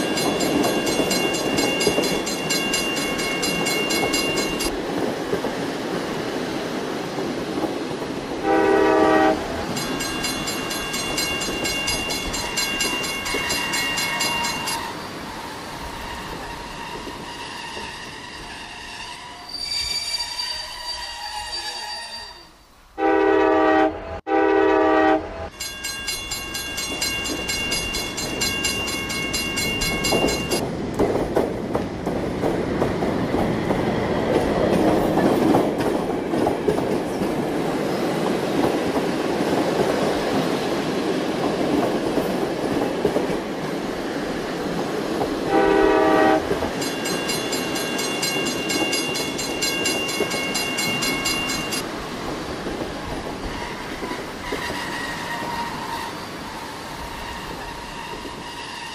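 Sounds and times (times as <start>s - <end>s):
train wheels rolling on rails: 0.0s - 22.8s, 24.8s - 58.9s
ride train horn: 8.4s - 9.7s, 20.4s - 25.6s, 45.5s - 46.7s.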